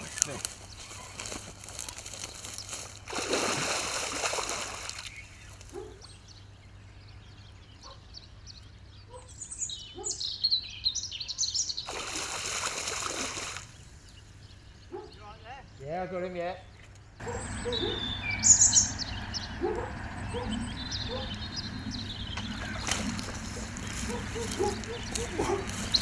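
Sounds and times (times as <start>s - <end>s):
birds chirping: 0.0s - 26.0s
fish thrashing water splashing: 3.0s - 5.2s, 11.9s - 13.7s.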